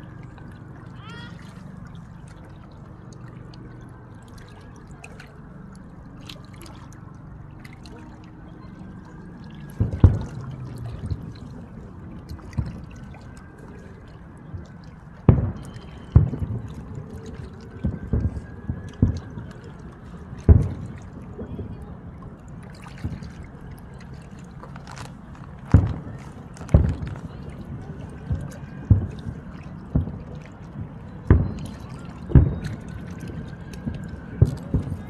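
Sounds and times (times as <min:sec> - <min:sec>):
low background murmur: 0:00.0 - 0:35.0
fireworks booming: 0:25.7 - 0:27.2.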